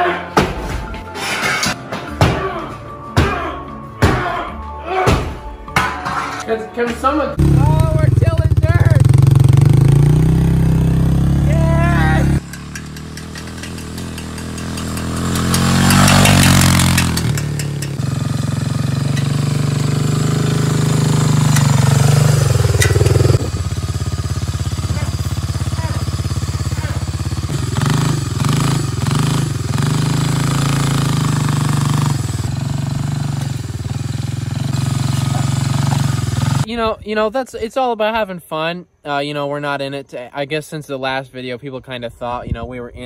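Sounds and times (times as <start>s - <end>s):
spiked wheels churning dirt: 8.5s - 36.7s
small gasoline engine running hard: 12.1s - 36.6s.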